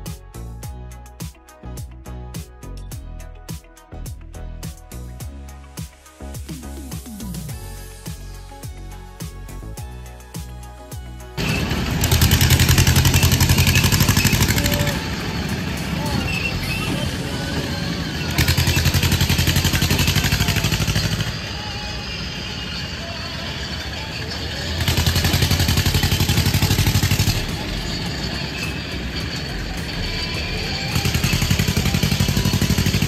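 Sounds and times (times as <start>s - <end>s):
fairground ride machinery pulsing: 9.6s - 33.0s
din of the fair: 11.4s - 33.0s.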